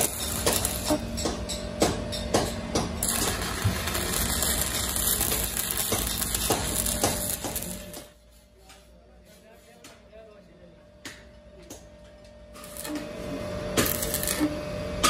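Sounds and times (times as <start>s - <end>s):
welding arc crackling: 0.0s - 1.2s, 2.8s - 8.3s, 12.5s - 14.6s.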